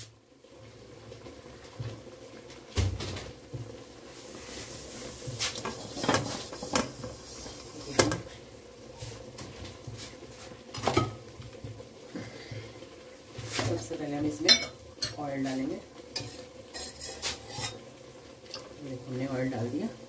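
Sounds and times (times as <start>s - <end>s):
cloth wiping a metal pan: 4.3s - 8.0s, 16.8s - 17.8s
pan knocks and scrapes: 5.2s - 7.1s.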